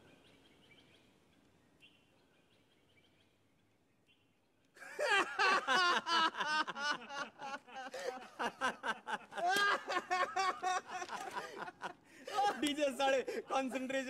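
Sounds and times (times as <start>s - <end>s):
young men laughing: 4.8s - 14.0s.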